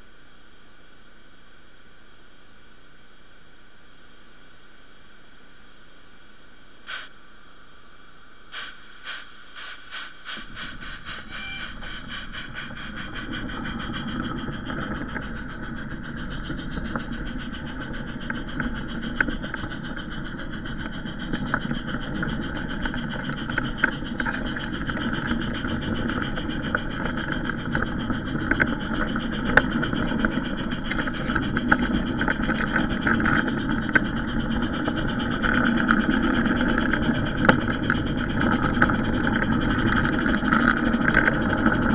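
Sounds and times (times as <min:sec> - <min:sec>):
wheels clattering on rails: 0:08.6 - 0:41.9.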